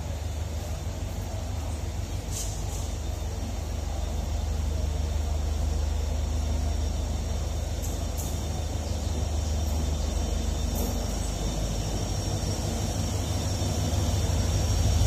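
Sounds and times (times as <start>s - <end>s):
diesel locomotive engine rumbling: 0.0s - 15.0s.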